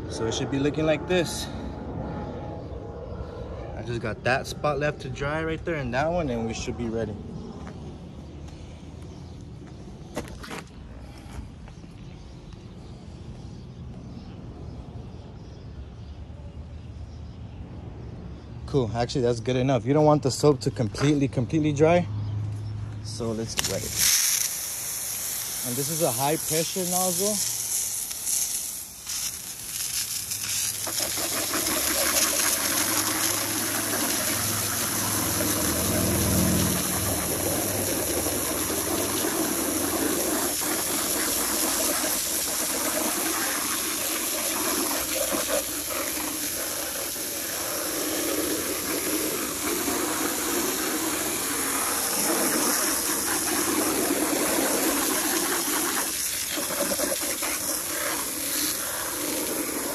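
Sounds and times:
hose water jet spraying: 23.2 - 59.9.

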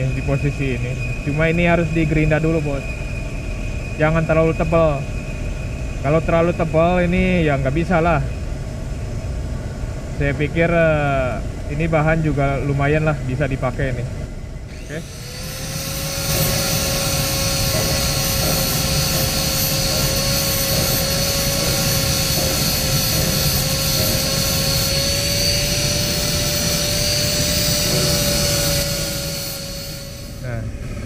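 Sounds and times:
angle grinder grinding metal: 14.7 - 31.0.

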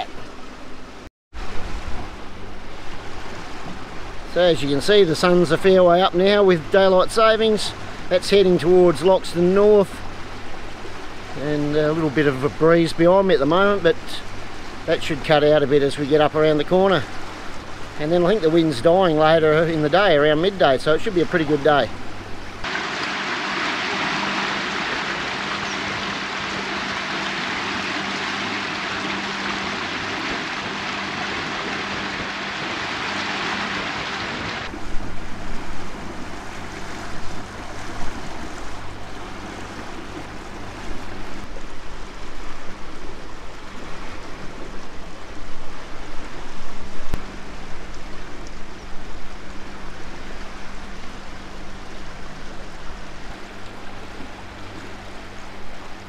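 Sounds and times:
boat motor humming: 0.0 - 56.0
water rushing along hull: 0.0 - 56.0
wind gusting on microphone: 22.6 - 39.0.

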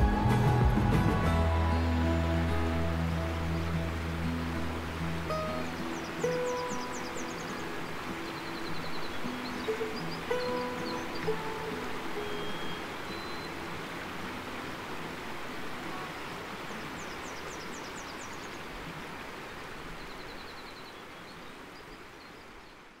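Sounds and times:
steady rushing hiss: 0.0 - 20.1
birds calling: 3.2 - 14.1
high bird chirps: 5.4 - 11.5, 12.2 - 13.6
thin bird trill: 5.4 - 13.6.

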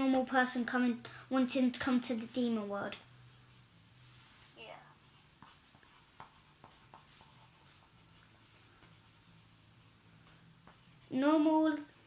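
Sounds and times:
pencil scratching on paper: 3.0 - 3.7, 5.0 - 11.8.

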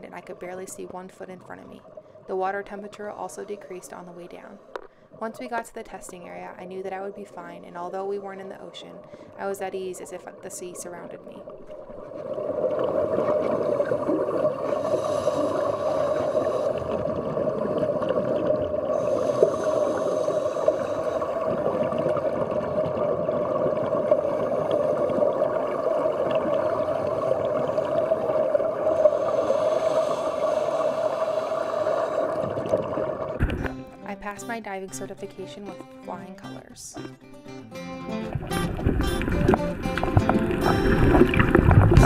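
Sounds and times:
underwater rumbling hum: 11.3 - 33.9, 38.2 - 42.0
underwater bubbling hiss: 11.8 - 33.7, 40.0 - 42.0.

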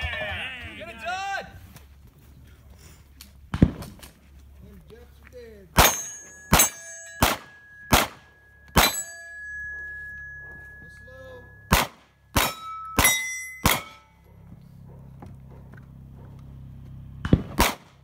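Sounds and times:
pistol shots: 5.8 - 9.1, 11.7 - 14.0, 17.2 - 18.0
steel plate targets ringing: 5.8 - 14.2.

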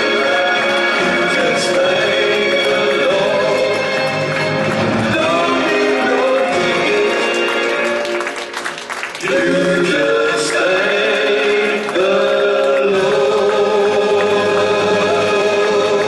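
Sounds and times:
choir singing long held notes: 0.0 - 8.4, 9.2 - 16.0.

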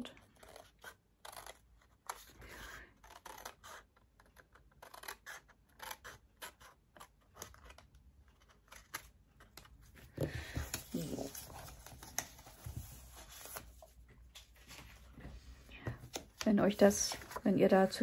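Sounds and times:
paper rustling: 8.3 - 18.0.

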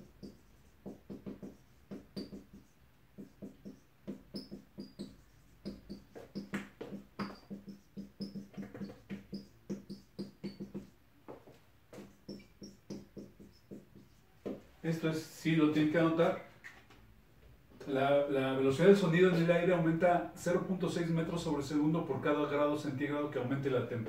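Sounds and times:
marker squeaking on whiteboard: 0.0 - 15.0, 16.3 - 17.0.

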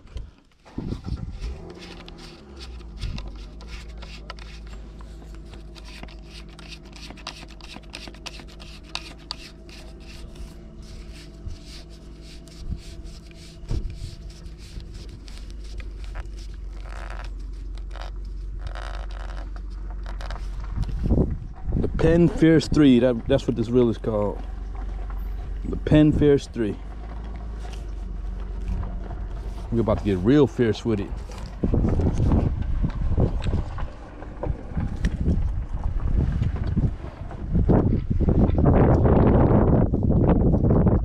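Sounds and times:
low rumble: 0.0 - 41.0
fishing reel clicking and scraping: 1.3 - 20.9.

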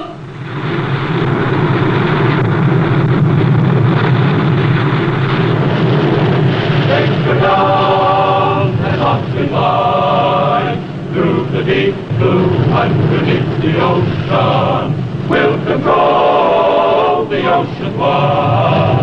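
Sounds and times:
churning water and spray: 0.3 - 19.0
men's chorus singing: 6.8 - 19.0.

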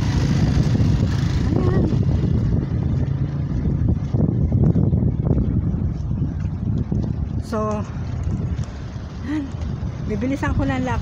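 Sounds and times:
road traffic rumble: 0.0 - 11.0
wind buffeting microphone: 0.0 - 11.0.

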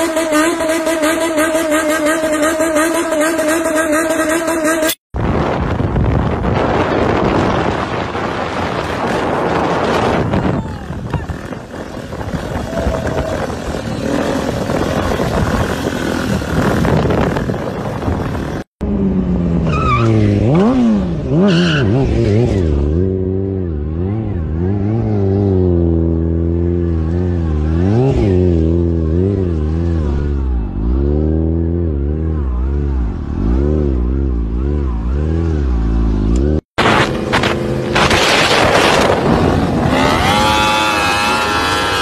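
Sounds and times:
motorcycle engine revving: 0.0 - 5.6, 6.2 - 42.0
rough noisy rush: 36.8 - 42.0.

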